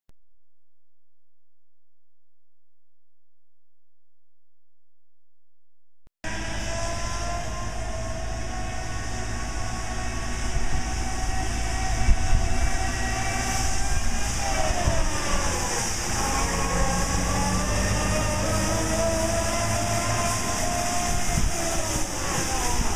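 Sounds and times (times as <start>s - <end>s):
brooms hissing on pavement: 6.3s - 22.9s
street sweeper engine drone: 6.3s - 22.9s.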